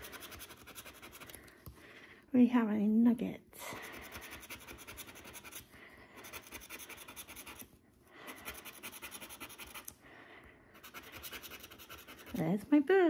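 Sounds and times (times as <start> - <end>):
scratcher scraping scratch card: 0.0 - 1.5, 3.8 - 7.7, 8.3 - 9.9, 10.8 - 12.6.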